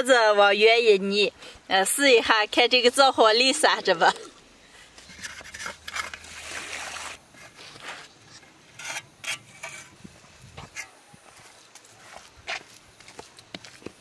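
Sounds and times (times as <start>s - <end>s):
trowel scraping mud: 5.0s - 10.0s.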